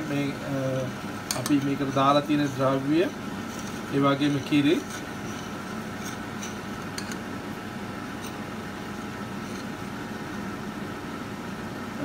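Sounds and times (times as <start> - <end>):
steady background hum: 0.0 - 12.0
spoon stirring in saucepan: 3.1 - 7.3.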